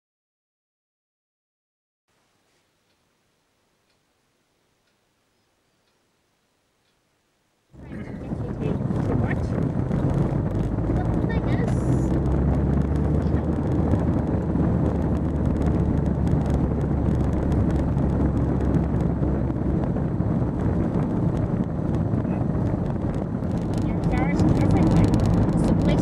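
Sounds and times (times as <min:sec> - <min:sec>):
road noise rumble: 0:07.6 - 0:26.0
car engine hum: 0:07.7 - 0:26.0.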